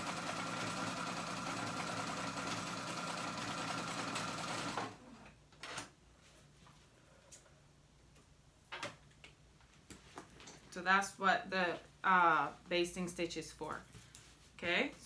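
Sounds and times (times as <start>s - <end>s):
sewing machine running: 0.0s - 5.2s.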